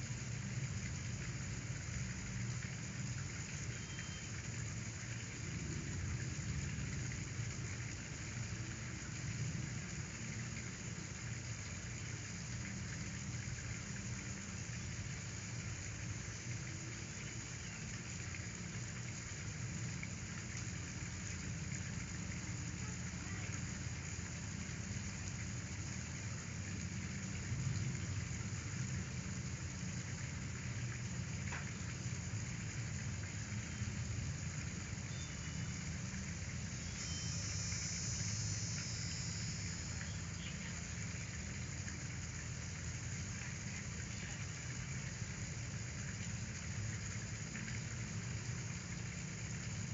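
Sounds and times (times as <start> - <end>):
even hiss: 34.4 - 45.8
faint high trill: 36.8 - 40.0.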